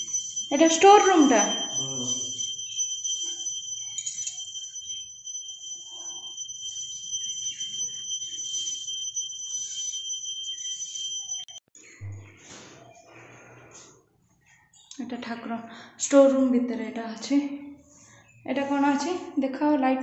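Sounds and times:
steady high-pitched tone: 0:00.0 - 0:11.6.

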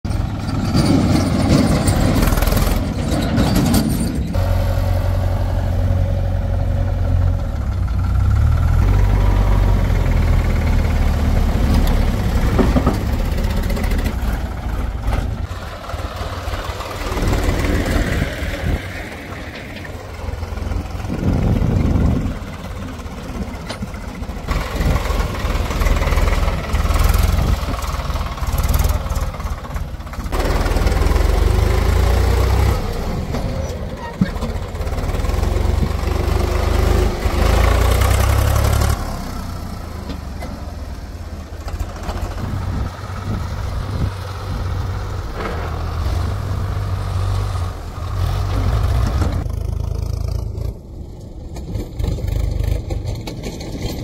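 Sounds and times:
diesel engines rumbling: 0:00.0 - 0:54.0.

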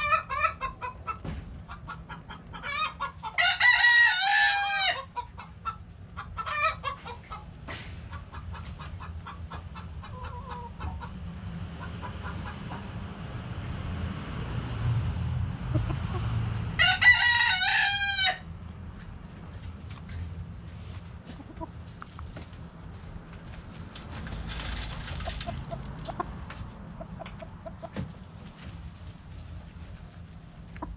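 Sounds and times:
chickens clucking softly: 0:00.0 - 0:03.5, 0:04.5 - 0:13.2, 0:15.6 - 0:16.4, 0:21.0 - 0:22.5, 0:25.2 - 0:28.7, 0:29.8 - 0:30.9
rooster crowing: 0:03.4 - 0:05.1, 0:16.8 - 0:18.5.

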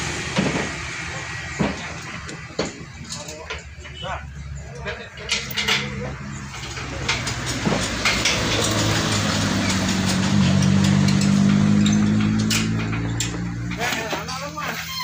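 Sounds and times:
diesel engine speeding up: 0:00.0 - 0:03.0, 0:05.9 - 0:14.3.

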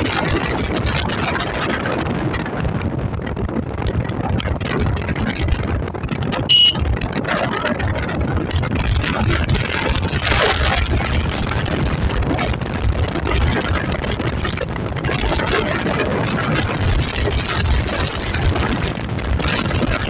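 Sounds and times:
motorcycle engine running: 0:00.0 - 0:20.0
wind buffeting microphone: 0:00.0 - 0:20.0
short high beep: 0:06.5 - 0:06.8.

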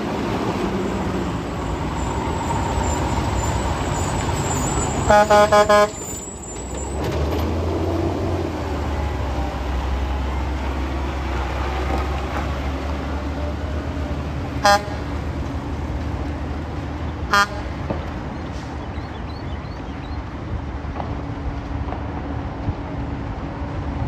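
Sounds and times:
truck diesel engines driving past: 0:00.0 - 0:24.0
short horn toots: 0:05.1 - 0:06.0.

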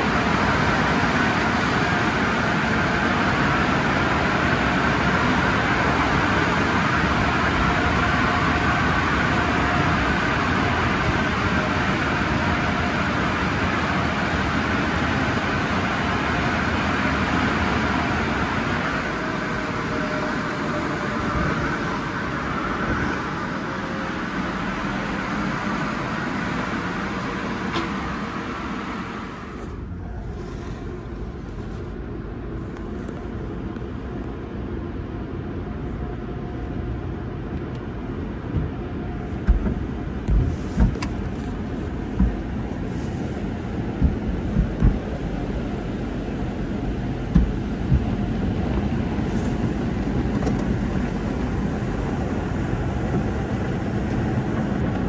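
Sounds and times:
rush of air and machinery: 0:00.0 - 0:55.0
brushes thumping car: 0:38.5 - 0:45.3, 0:47.3 - 0:48.2.

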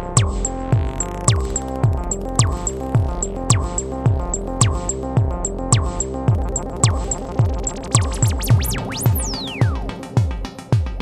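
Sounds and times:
steady synth tone: 0:00.0 - 0:10.2
synth pitch sweeps: 0:00.0 - 0:10.2
synthesized kick drum: 0:00.0 - 0:11.0.

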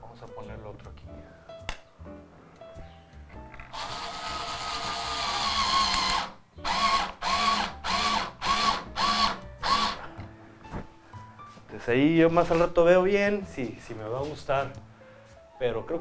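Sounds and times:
power drill driving screw: 0:03.7 - 0:10.1.

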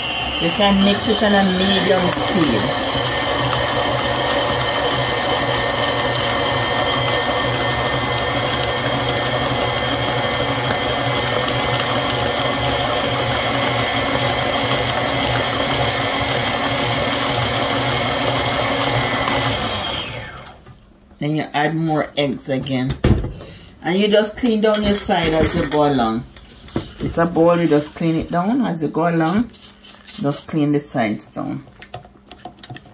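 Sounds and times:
stand mixer motor whining: 0:00.0 - 0:20.6.

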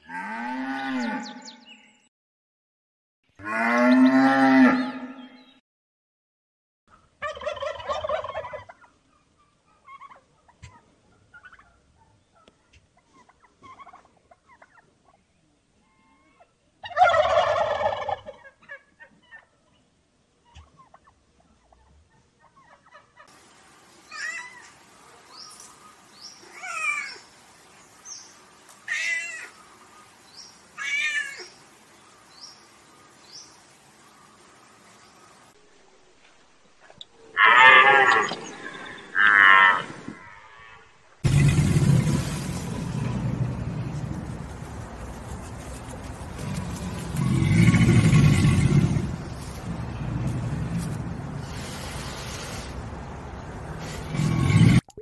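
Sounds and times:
alligator bellowing: 0:39.2 - 0:44.4, 0:46.3 - 0:50.6, 0:53.8 - 0:54.9.

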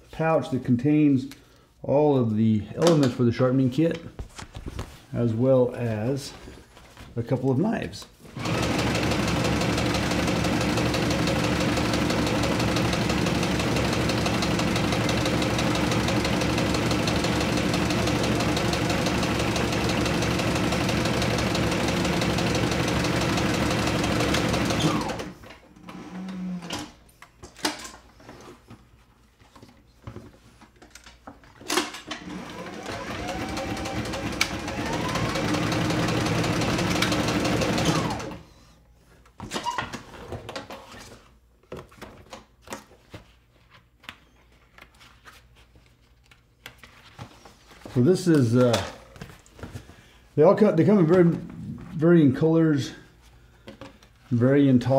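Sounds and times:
sewing machine stitching leather: 0:08.4 - 0:26.8, 0:32.1 - 0:38.5.

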